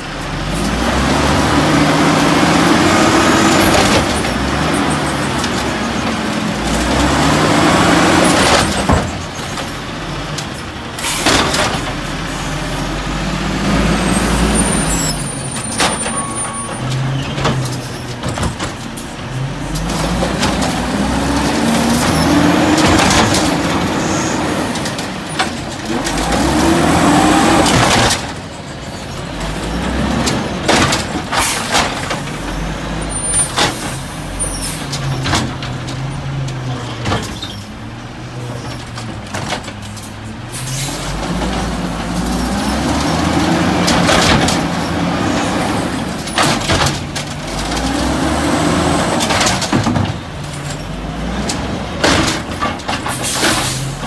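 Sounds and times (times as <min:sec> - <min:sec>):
truck engine revving: 0:00.0 - 0:54.0.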